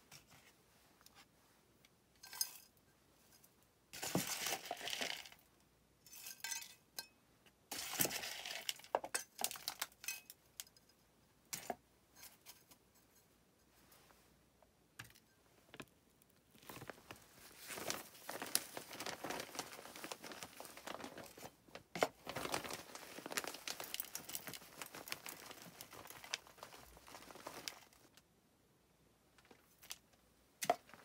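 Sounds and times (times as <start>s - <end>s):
plastic bag crinkling: 4.0s - 5.4s, 16.5s - 28.2s.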